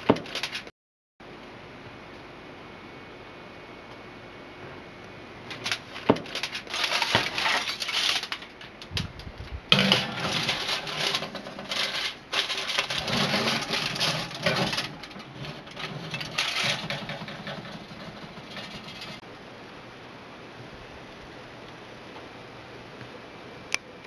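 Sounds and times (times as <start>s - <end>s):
aluminium foil crinkling: 0.2s - 0.7s, 5.5s - 19.2s.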